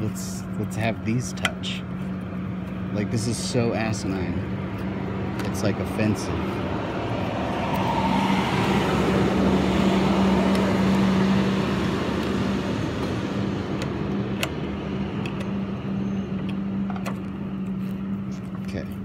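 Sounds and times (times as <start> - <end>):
vehicle engine humming: 0.0 - 19.0.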